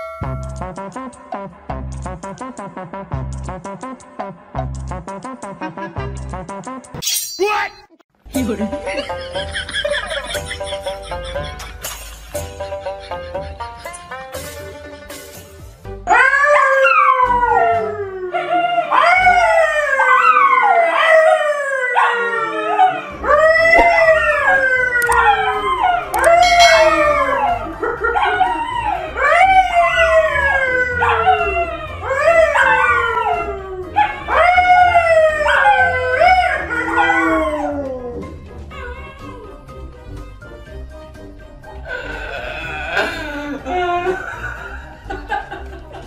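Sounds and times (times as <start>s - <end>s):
dogs howling: 16.1s - 39.8s
man howling: 21.9s - 39.5s.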